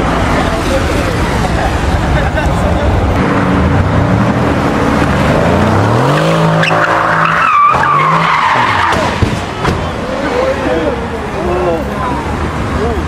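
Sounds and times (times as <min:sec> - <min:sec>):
car engine revving hard: 0:03.2 - 0:09.2
tyres squealing: 0:06.0 - 0:10.9.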